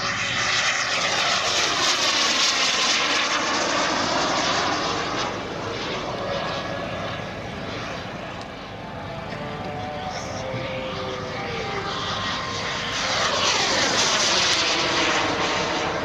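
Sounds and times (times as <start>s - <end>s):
model jet turbine passing: 0.0s - 16.0s.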